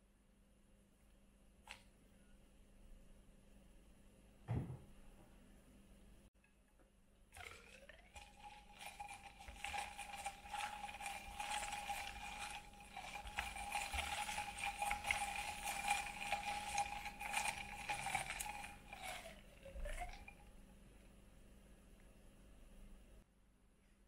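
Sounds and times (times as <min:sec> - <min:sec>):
ice clinking against glass: 0:08.2 - 0:20.4.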